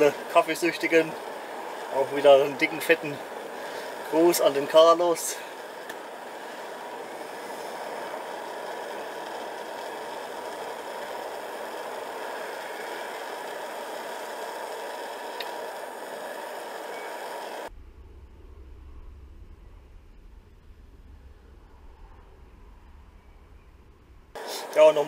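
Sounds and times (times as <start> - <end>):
gas burner hissing: 0.0 - 17.7, 24.3 - 25.0
faint low hum: 0.0 - 25.0.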